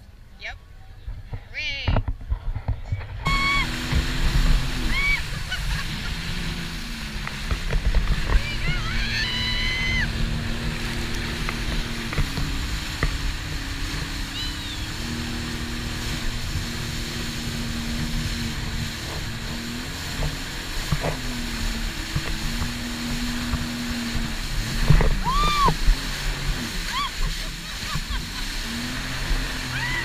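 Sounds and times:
wind and water rumble: 0.0 - 30.0
jet ski engine running: 2.6 - 30.0.

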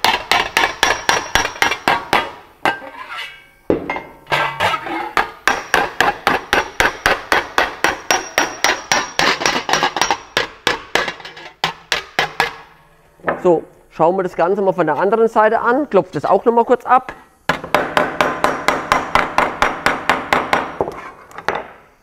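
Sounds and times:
hammer tapping sheet metal: 0.0 - 2.8, 5.2 - 12.6.

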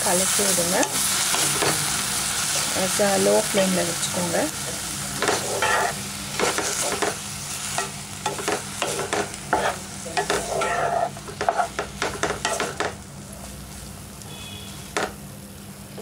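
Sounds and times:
sizzling in a pan: 0.0 - 16.0
wooden spatula scraping a pan: 5.2 - 7.1, 8.8 - 11.8
spatula tapping a pan: 11.4 - 13.0, 15.0 - 15.2.

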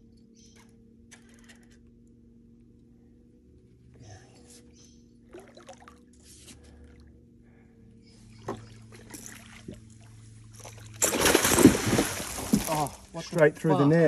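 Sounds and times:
steady low hum: 0.0 - 14.0
water trickling and splashing: 5.2 - 6.3, 8.4 - 13.6.

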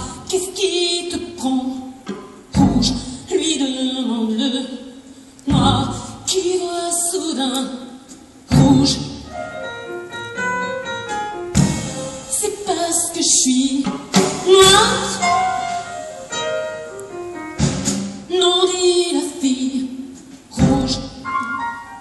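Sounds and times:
soprano singing: 0.0 - 4.9, 5.5 - 9.8, 12.0 - 16.9, 18.3 - 22.0
double bass: 2.0 - 3.4, 5.4 - 6.2, 8.4 - 18.4, 20.4 - 21.3
grand piano: 5.5 - 22.0
drum kit: 8.5 - 9.2, 10.1 - 19.0, 20.2 - 21.3.

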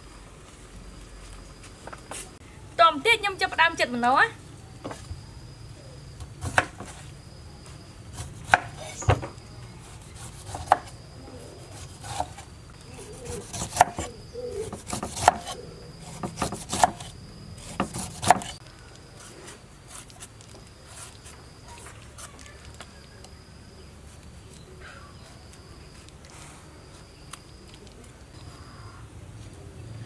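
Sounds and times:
faint insect drone: 0.0 - 30.0
cleaver chopping on wooden board: 8.5 - 9.3, 10.2 - 10.9, 13.2 - 18.6.

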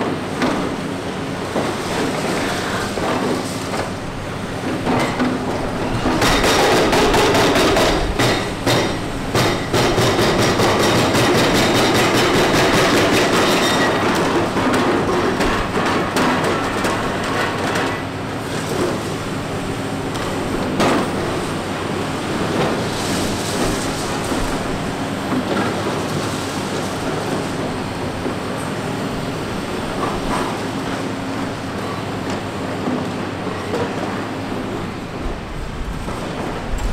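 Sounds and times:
excavator hammering concrete: 4.6 - 26.1.

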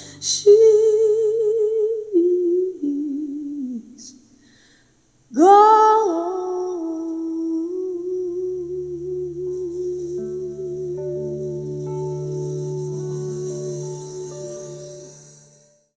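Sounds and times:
woman humming: 5.6 - 15.5
low drone: 8.0 - 15.9.

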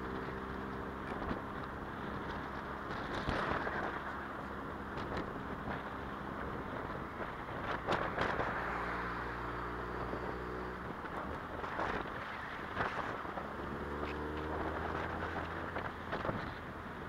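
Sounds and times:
car engine humming: 0.0 - 17.0
wind and road noise: 0.0 - 17.0.

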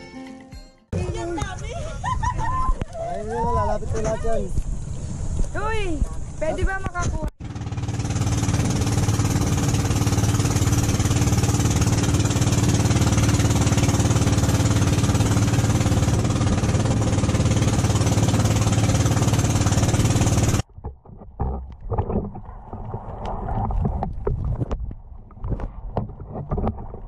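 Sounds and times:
water rushing along hull: 2.4 - 27.0
boat engine rattling drone: 7.4 - 21.0
faint underwater sloshing: 20.8 - 27.0.

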